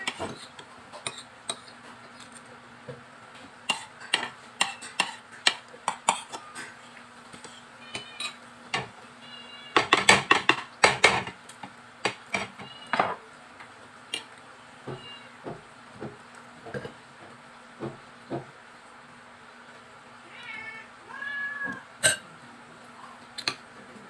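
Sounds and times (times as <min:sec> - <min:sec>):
cutlery clinking on ceramic bowl: 0:03.7 - 0:06.8, 0:07.9 - 0:08.4, 0:22.0 - 0:22.2.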